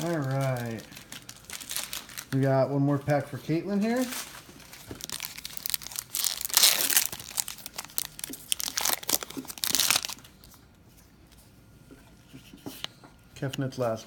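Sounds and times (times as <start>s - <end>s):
foil wrapper crinkling: 0.0s - 10.6s.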